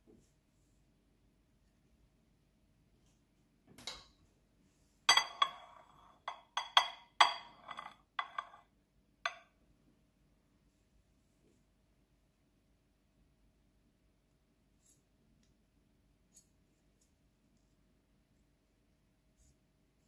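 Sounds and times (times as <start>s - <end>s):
glass bowl clinking on plate: 5.1s - 8.6s, 9.3s - 9.5s.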